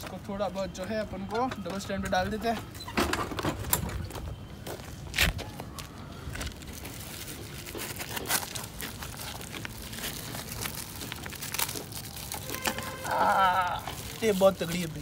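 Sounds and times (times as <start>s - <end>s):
tape crinkling and crackling: 3.6s - 15.0s
tape ripping: 6.4s - 15.0s.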